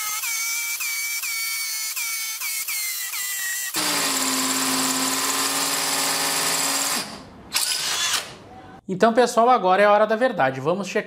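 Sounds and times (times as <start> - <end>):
hammer drill boring into concrete: 0.0 - 8.3.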